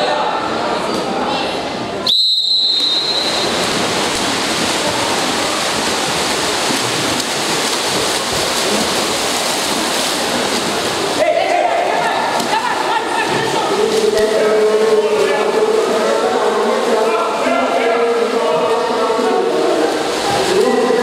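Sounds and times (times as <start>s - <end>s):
swimmers splashing: 2.0s - 21.0s
referee's whistle blast: 2.1s - 3.5s.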